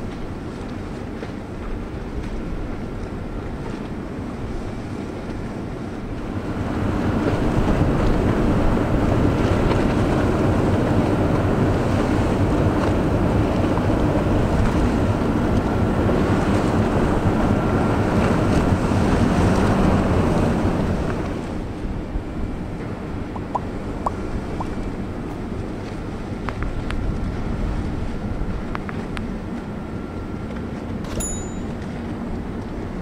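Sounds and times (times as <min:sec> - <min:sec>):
ship engine drone: 0:00.0 - 0:33.0
water rushing: 0:04.2 - 0:28.5
wind buffeting microphone: 0:04.4 - 0:30.3.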